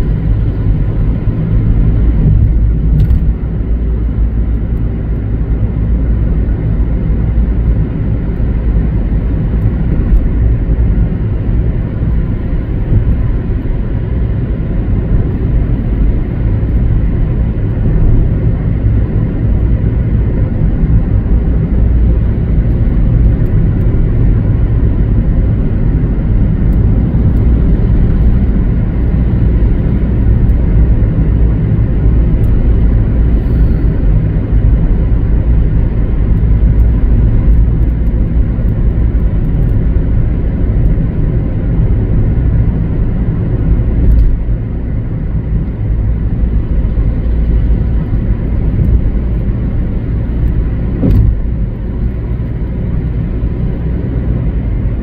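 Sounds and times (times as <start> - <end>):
car road rumble from inside: 0.0 - 55.0.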